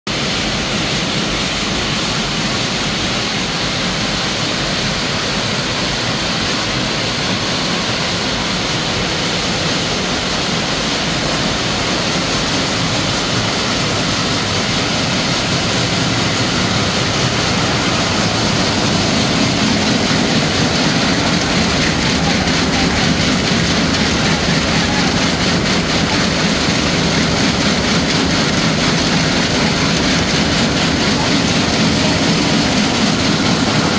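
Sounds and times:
sieving machine rattling: 12.0s - 33.9s.

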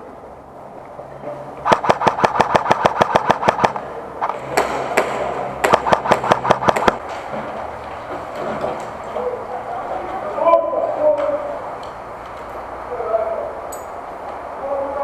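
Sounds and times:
airsoft gun firing: 1.6s - 7.1s.

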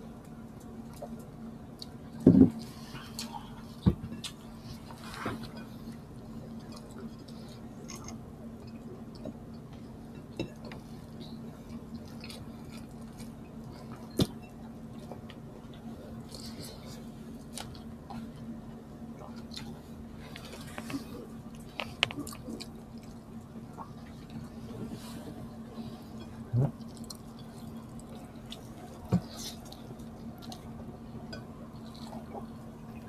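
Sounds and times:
steady low hum: 0.0s - 33.0s
chewing: 2.6s - 14.3s, 19.2s - 33.0s.

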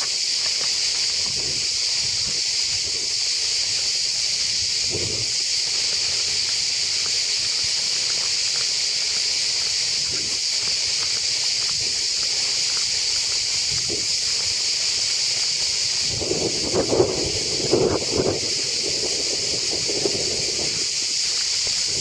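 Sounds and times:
footsteps on dirt path: 0.0s - 17.4s
cicadas droning: 0.0s - 22.0s.

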